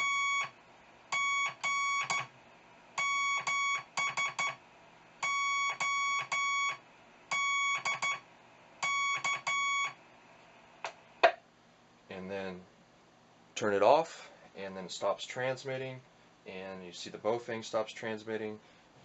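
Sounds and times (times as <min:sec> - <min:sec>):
morse code beeping tone: 0:01.2 - 0:02.3, 0:05.2 - 0:06.8, 0:08.8 - 0:10.0.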